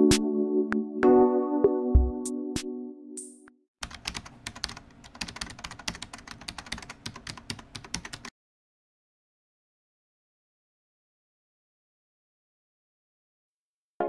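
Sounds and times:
fast keyboard typing: 3.8s - 8.3s.

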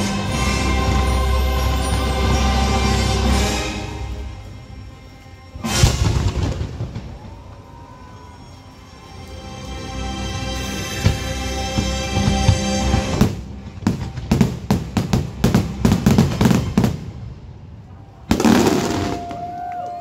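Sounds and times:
show music: 0.0s - 17.3s
fireworks bangs and crackles: 5.6s - 8.6s, 10.3s - 19.8s.

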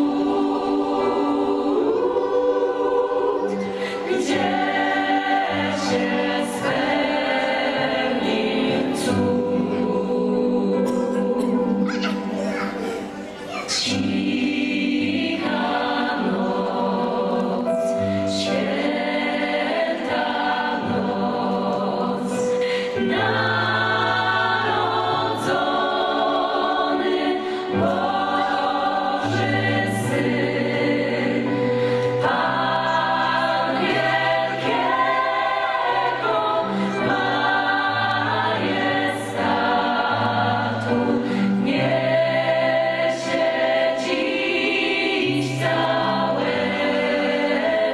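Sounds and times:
gospel choir singing: 0.0s - 47.9s
keyboard accompaniment: 0.0s - 47.9s.

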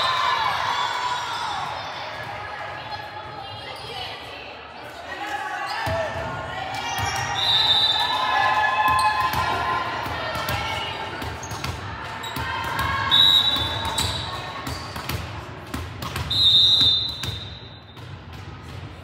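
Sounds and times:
players shouting: 5.0s - 14.9s.

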